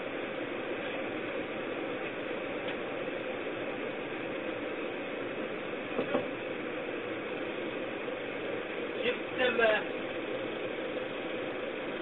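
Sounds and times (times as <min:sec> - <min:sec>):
short knock: 0:06.0 - 0:06.3.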